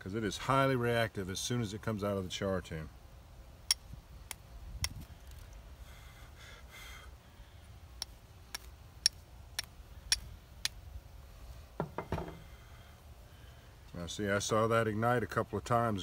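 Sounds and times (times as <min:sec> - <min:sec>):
flint and steel strikes: 0:08.0 - 0:10.8.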